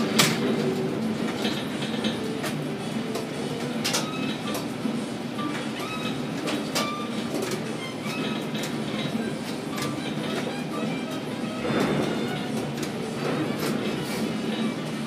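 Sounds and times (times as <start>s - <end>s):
steel wheels rumbling on rails: 0.0s - 15.0s
short high squeaks: 5.4s - 12.6s.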